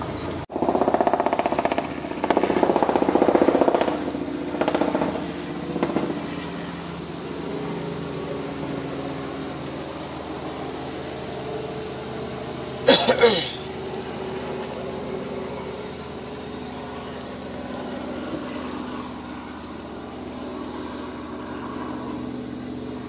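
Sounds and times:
vehicle engine clattering idle: 0.0s - 6.3s, 12.8s - 16.5s.

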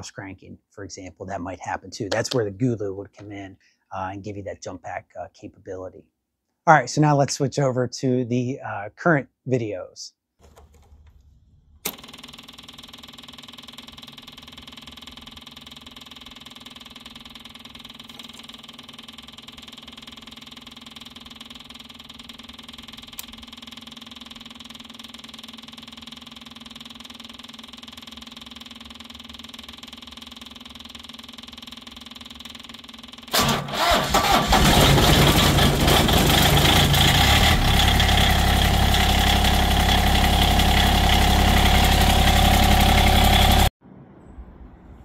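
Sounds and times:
electric fuel pump humming: 11.8s - 43.7s.

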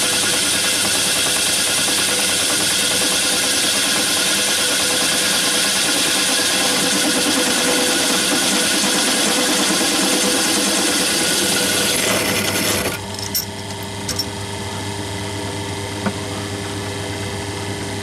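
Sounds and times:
hole saw grinding through metal: 0.0s - 14.4s
drill motor running: 0.0s - 14.5s.

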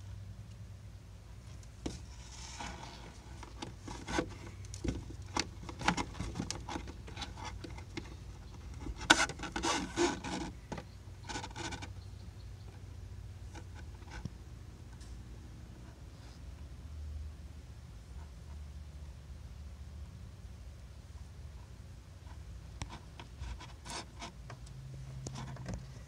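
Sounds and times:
hands rubbing on fibreglass panel: 1.8s - 11.9s.

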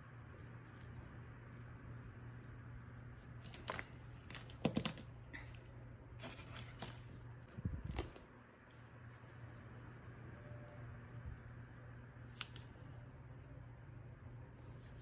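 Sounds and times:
steady low hum: 0.0s - 15.0s
paper page rustling and sliding: 6.2s - 7.2s.

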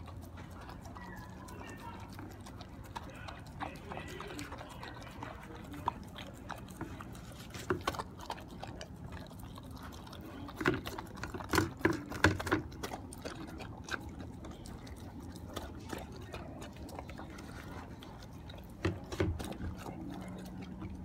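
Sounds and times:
dog chewing and smacking: 0.0s - 21.0s.

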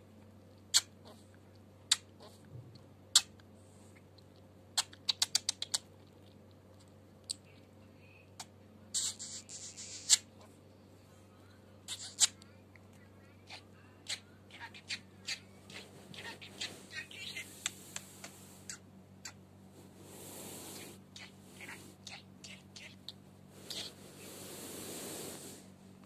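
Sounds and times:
budgerigar clicking: 4.8s - 5.9s
hissy scratchy burst: 23.8s - 25.7s.

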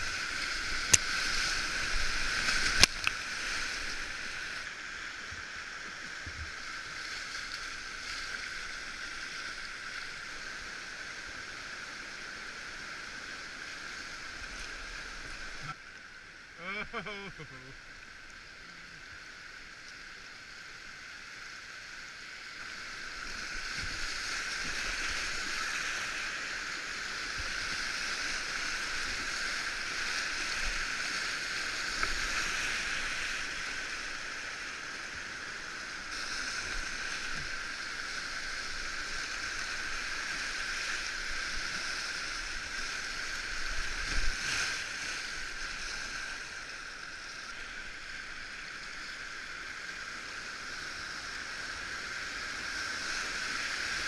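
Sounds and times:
whitewater rapids rushing: 0.0s - 5.8s
paddle splashes: 0.0s - 10.4s.

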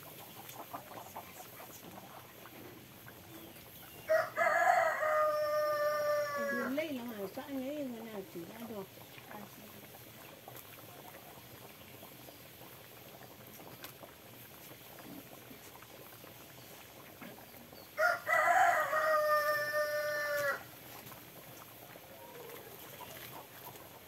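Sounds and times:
rooster crowing: 4.0s - 6.7s, 18.0s - 20.7s.

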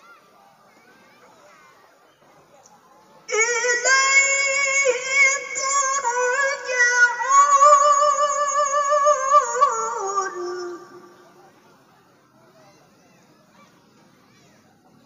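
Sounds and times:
woman reciting melodically: 3.3s - 11.4s.

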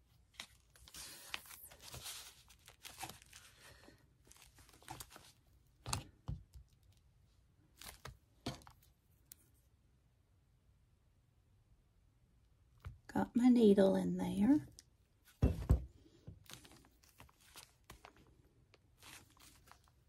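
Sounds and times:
paper pages rustling: 0.2s - 6.6s, 16.4s - 20.0s.

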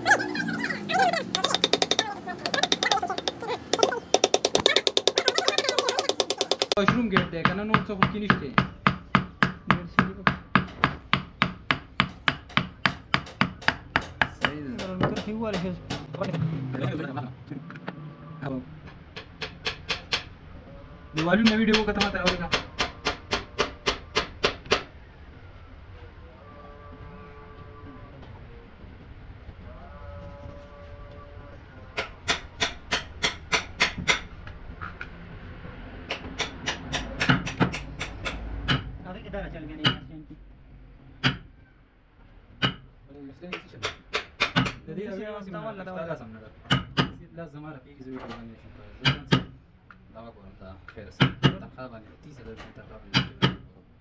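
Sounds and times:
wooden mallet knocking gouge handle: 1.2s - 16.4s, 21.2s - 24.9s.

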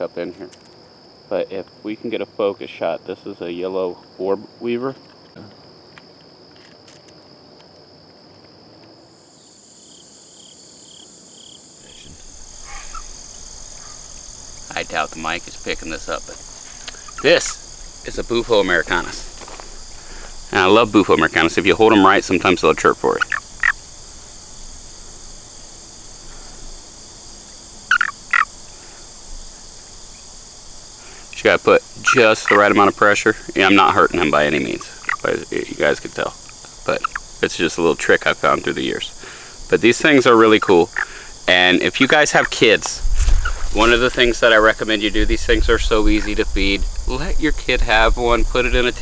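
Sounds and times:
insect high trill: 0.0s - 49.0s
insect higher trill: 0.0s - 49.0s
short insect chirps: 4.4s - 45.2s
toad chirping: 9.8s - 15.0s, 16.7s - 18.7s, 20.5s - 24.0s, 27.8s - 28.6s, 32.0s - 35.4s, 36.4s - 37.4s.

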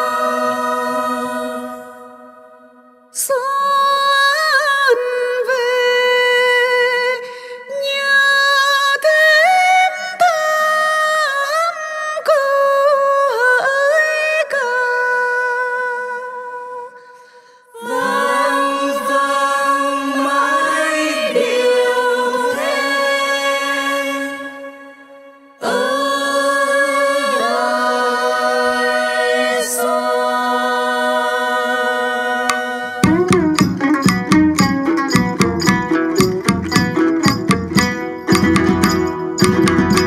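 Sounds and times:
group of voices singing: 0.0s - 3.4s, 17.7s - 33.2s
person singing ornamented phrases: 0.0s - 17.0s, 17.7s - 33.4s.

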